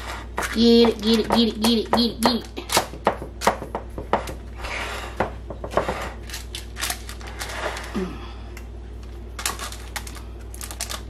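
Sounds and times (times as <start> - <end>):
parchment paper crinkling: 9.0 - 11.0.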